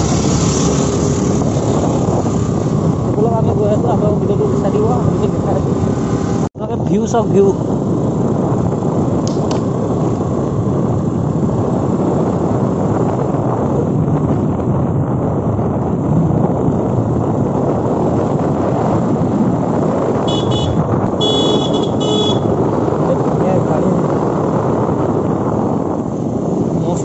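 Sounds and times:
wind rushing over microphone: 0.0 - 27.0
motorcycle engine running: 7.5 - 27.0
vehicle horn beeps: 20.3 - 22.5.

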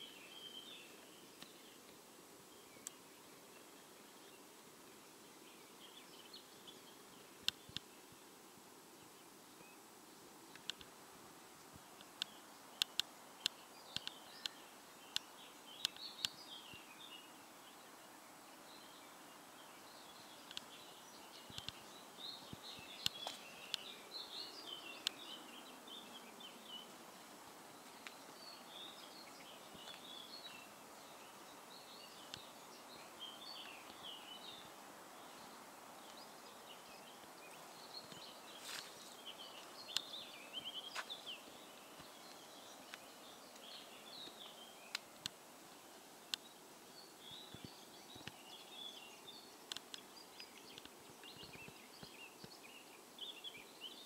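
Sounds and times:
small birds chirping: 0.0 - 54.0
steady outdoor hiss: 0.0 - 54.0
sharp clicks: 10.5 - 10.9, 12.0 - 16.4, 20.5 - 20.7, 49.7 - 50.0.

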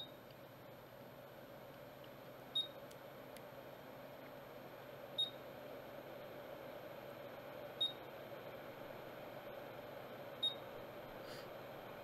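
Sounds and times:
hot air station blowing: 3.6 - 12.0.

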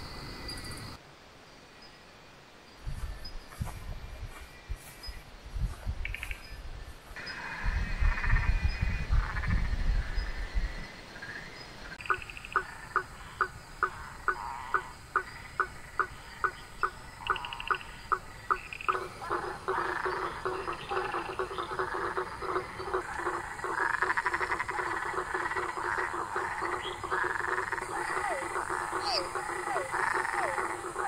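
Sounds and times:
frog chorus: 6.0 - 6.6, 7.2 - 31.0
frog knocking call: 12.0 - 31.0.

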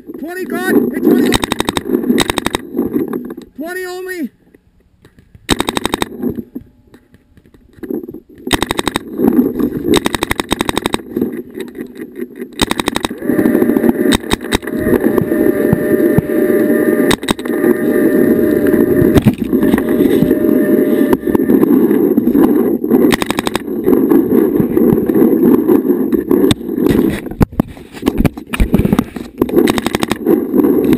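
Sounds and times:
steady rushing noise: 0.0 - 30.9
paintball marker firing: 1.3 - 2.6, 5.0 - 6.4, 8.4 - 9.1, 9.9 - 11.1, 12.6 - 13.2, 17.1 - 17.4, 23.1 - 23.7.

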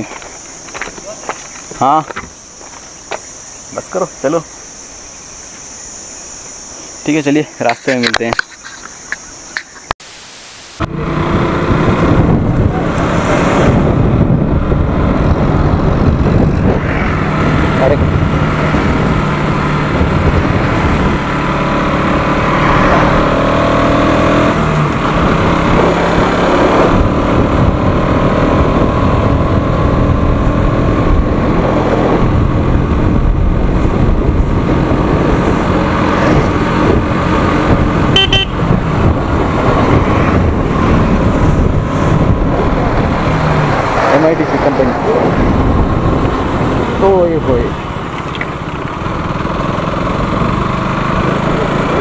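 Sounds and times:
motorcycle engine running: 10.8 - 44.8, 45.4 - 52.0
wind rushing over microphone: 10.8 - 52.0.

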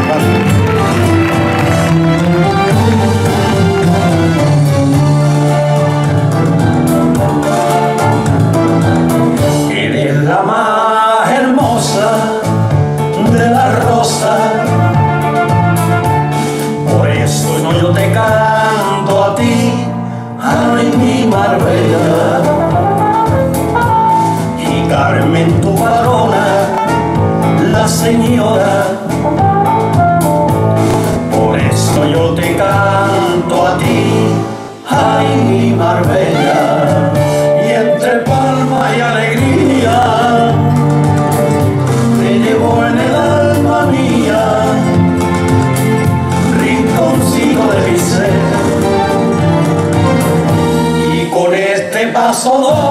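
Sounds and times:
instrumental accompaniment with bass: 0.0 - 52.9
male vocal duo singing: 9.4 - 15.5, 16.4 - 23.4, 24.3 - 29.4, 31.2 - 41.2, 41.9 - 50.2, 50.8 - 52.9.

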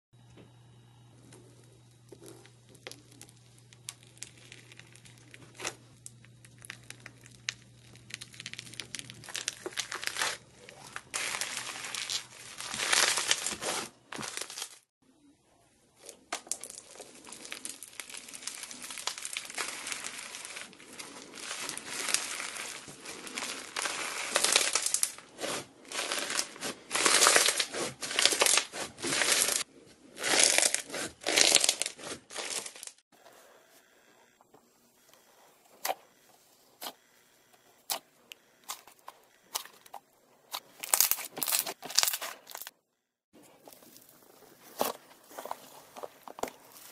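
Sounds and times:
foam bead slime crackling: 2.1 - 14.9, 16.0 - 33.0, 40.5 - 42.7.

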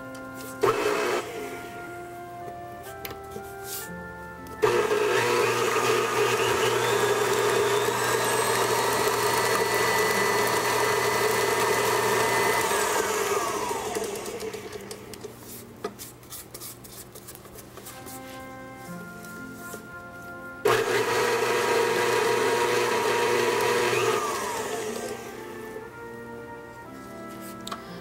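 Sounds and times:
electric stand mixer running: 0.6 - 1.6, 4.6 - 15.2, 20.6 - 25.8.

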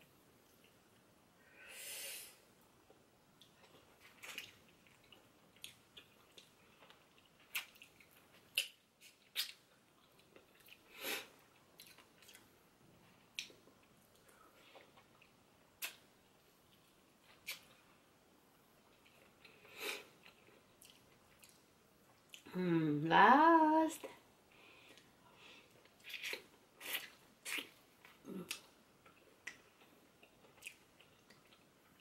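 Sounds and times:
short airy hisses: 1.6 - 2.4
lip smacks and wet clicks: 15.2 - 16.1.

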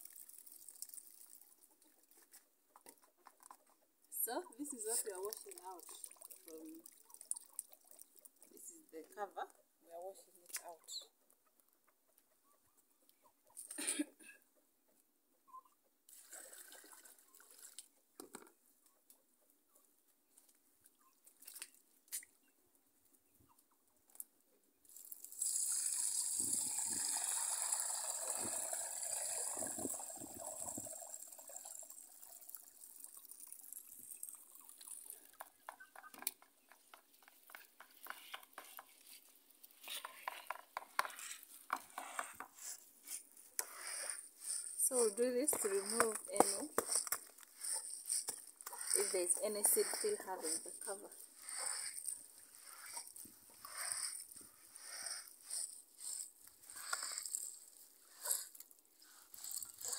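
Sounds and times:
hands rubbing peas in water: 0.0 - 2.3, 4.2 - 9.2, 24.9 - 59.9
water pouring through a sieve: 0.0 - 2.3, 4.2 - 8.9, 16.1 - 17.9, 24.9 - 36.2, 43.6 - 59.9.

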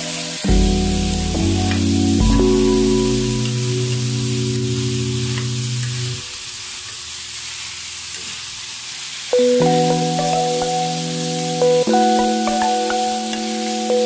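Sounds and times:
background music: 0.0 - 6.2, 9.4 - 14.0.

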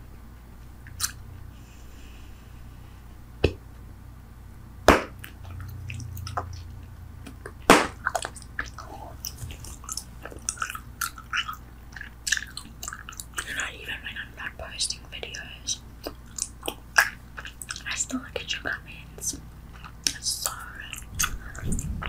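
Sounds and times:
gum chewing with mouth clicks: 0.8 - 1.2, 5.2 - 13.6, 16.0 - 18.0, 19.2 - 22.0
gum snapping: 16.0 - 17.8.

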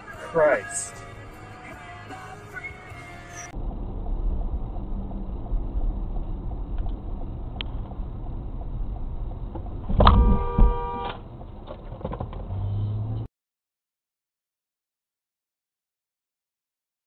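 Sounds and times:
road and engine rumble in car: 0.0 - 13.3
car horn: 10.0 - 11.2.

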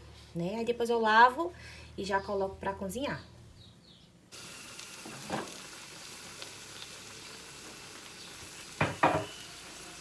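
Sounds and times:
onions sizzling in a pan: 4.3 - 10.0.

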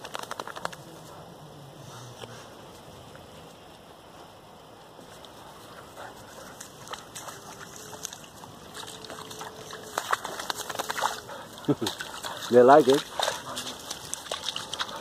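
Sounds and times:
crackles: 0.0 - 1.1
grass rustling: 0.0 - 15.0
small water splashes: 6.4 - 15.0.

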